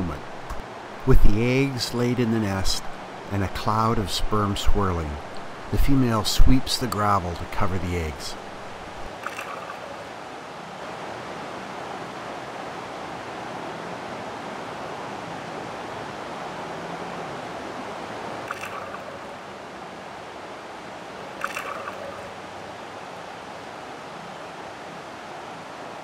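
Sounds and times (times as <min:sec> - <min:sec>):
river water running over gravel: 0:00.0 - 0:12.3, 0:18.0 - 0:23.7.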